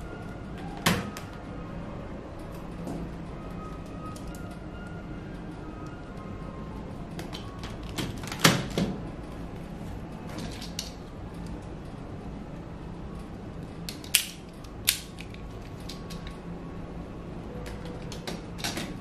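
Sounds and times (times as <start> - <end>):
plastic toy parts clicking: 13.9 - 16.4.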